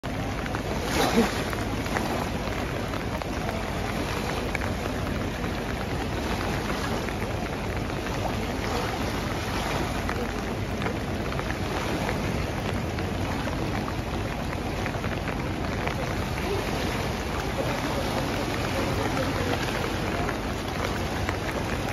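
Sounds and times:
rain falling: 0:00.0 - 0:21.9
river rushing in flood: 0:00.0 - 0:21.9.

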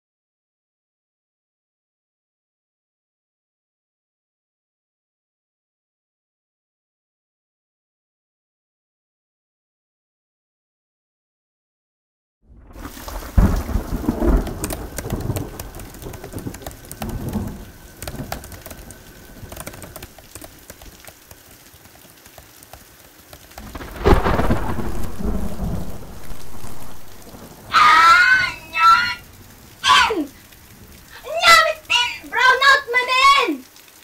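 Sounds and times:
thunder rumbling: 0:12.5 - 0:21.0, 0:23.6 - 0:32.4
steady rain: 0:12.5 - 0:34.0.

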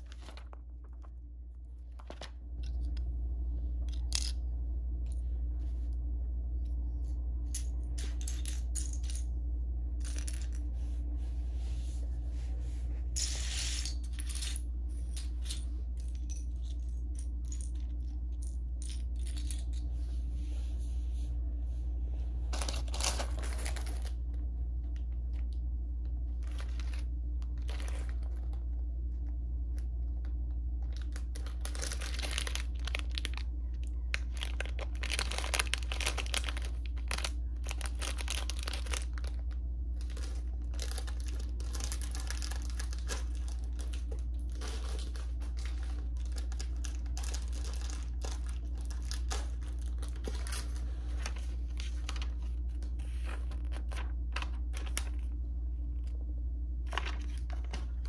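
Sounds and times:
plastic bags crinkling: 0:00.0 - 0:01.2, 0:22.5 - 0:24.3, 0:26.4 - 0:28.8, 0:30.8 - 0:55.3
steady low hum: 0:00.0 - 0:58.0.

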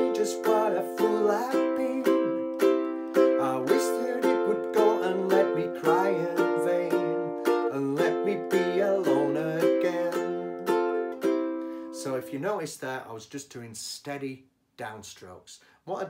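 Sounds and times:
ukulele strummed: 0:00.0 - 0:12.4.

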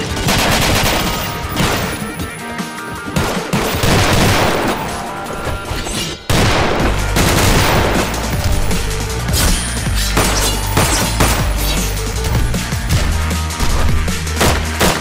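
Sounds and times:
rapid gunfire: 0:00.0 - 0:02.2, 0:03.1 - 0:05.0, 0:06.3 - 0:12.0, 0:12.9 - 0:15.0
action music: 0:00.0 - 0:15.0
heavy bass line: 0:06.3 - 0:14.9.

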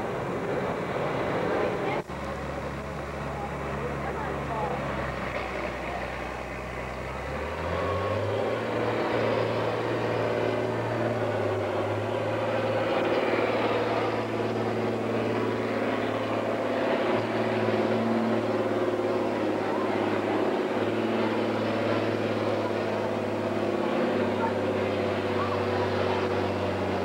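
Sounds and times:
tractor diesel engine revving: 0:00.0 - 0:27.0.

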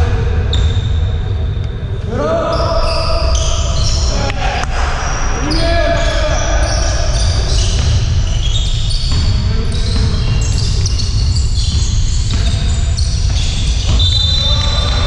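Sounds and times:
sneakers squeaking on court floor: 0:00.5 - 0:01.1, 0:02.5 - 0:04.2, 0:05.0 - 0:15.0
basketball dribbling: 0:06.6 - 0:15.0.

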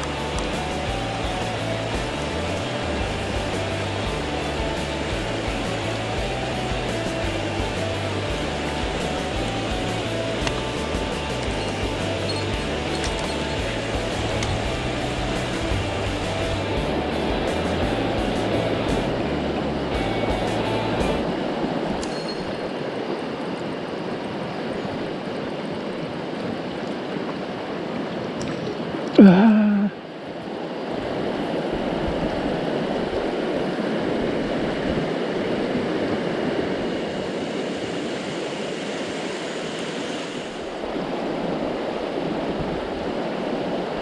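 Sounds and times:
mountain stream over rocks: 0:00.0 - 0:44.0.

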